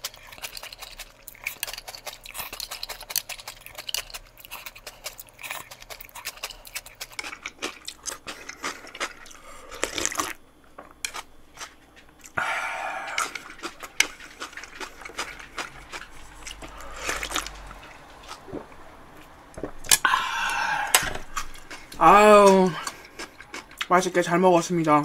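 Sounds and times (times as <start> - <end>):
person slurping broth: 12.3 - 13.7, 19.6 - 21.9.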